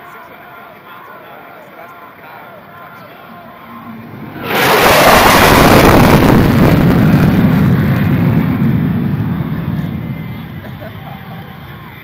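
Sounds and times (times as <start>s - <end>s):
fighter jet passing low: 3.3s - 12.0s.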